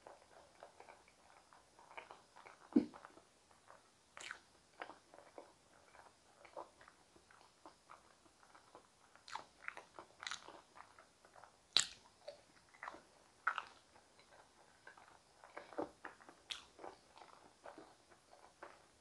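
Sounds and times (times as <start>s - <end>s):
chewing soft potatoes: 0.0s - 19.0s
mouth clicks and smacks: 0.6s - 18.8s.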